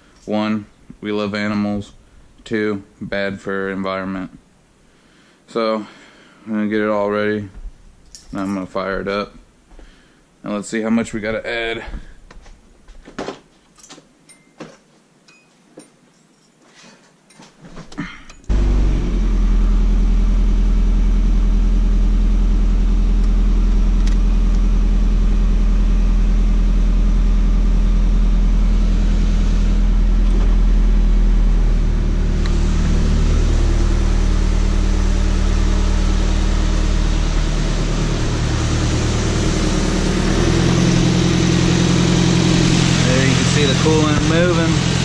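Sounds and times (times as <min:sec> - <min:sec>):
car engine starting and idling: 0:18.5 - 0:45.0.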